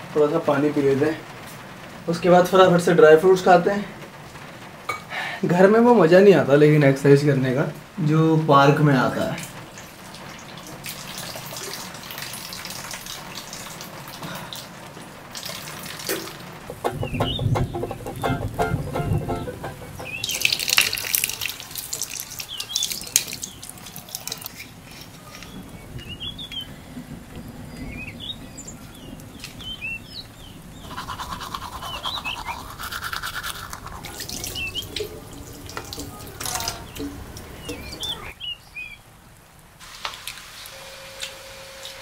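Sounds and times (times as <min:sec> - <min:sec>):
tap running into washbasin: 0:15.4 - 0:24.5, 0:33.7 - 0:38.1
steady hum: 0:16.7 - 0:21.2
small birds chirping: 0:16.7 - 0:39.1
toothbrush scrubbing teeth: 0:30.8 - 0:37.1.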